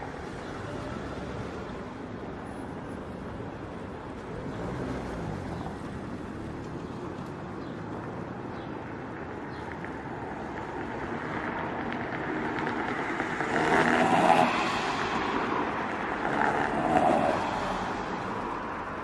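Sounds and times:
road traffic noise: 0.0 - 19.0
passing car engine: 11.2 - 18.9.

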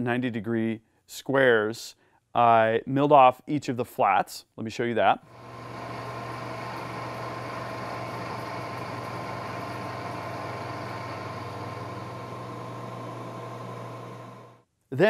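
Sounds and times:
milling machine humming: 5.3 - 14.6.

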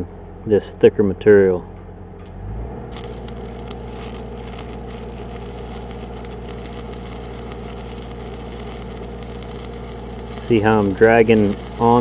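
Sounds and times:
low machine hum: 0.0 - 12.0
welding arc crackling: 2.8 - 12.0.

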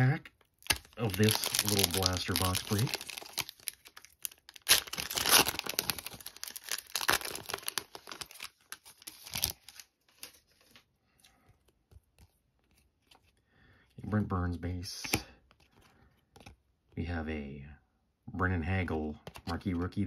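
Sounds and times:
foil wrapper tearing and crinkling: 0.6 - 10.4.

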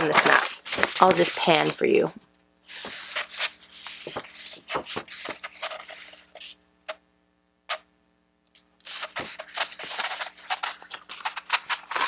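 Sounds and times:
stiff paper rustling and crinkling: 0.0 - 2.1, 2.7 - 6.5, 8.8 - 12.0.

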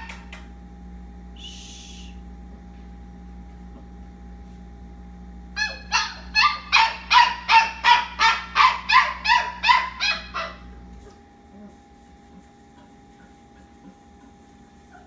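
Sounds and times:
small dog yipping: 5.6 - 10.6.

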